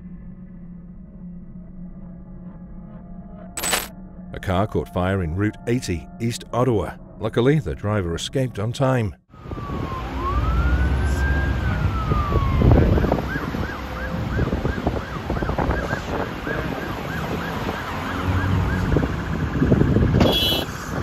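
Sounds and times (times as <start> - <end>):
emergency vehicle siren: 9.3 - 21.0
highway traffic rumble: 9.4 - 21.0.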